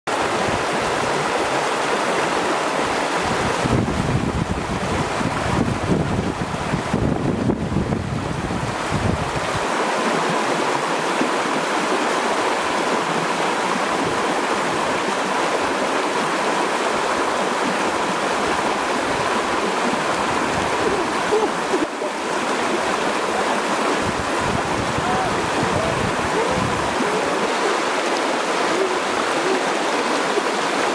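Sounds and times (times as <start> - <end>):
river rushing over rocks: 0.1 - 30.9
wind rumbling on microphone: 2.8 - 9.8, 18.0 - 21.9, 22.8 - 27.6.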